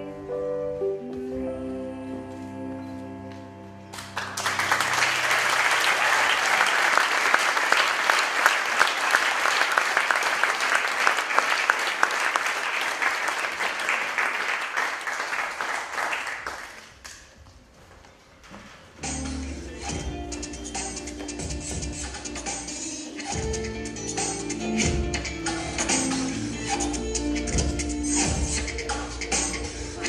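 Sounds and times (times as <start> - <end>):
audience applause: 3.9 - 16.9.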